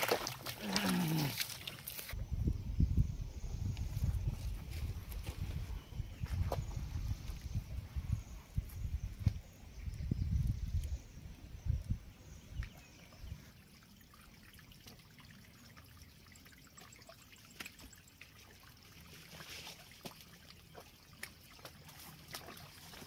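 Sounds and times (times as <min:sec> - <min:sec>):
faint trickle of running water: 0:12.4 - 0:23.0.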